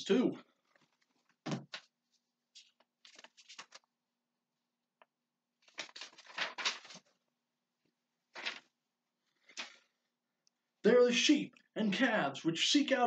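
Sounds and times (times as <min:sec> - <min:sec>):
paper rustling and flapping: 0:00.6 - 0:03.9, 0:05.6 - 0:07.2, 0:08.3 - 0:08.8.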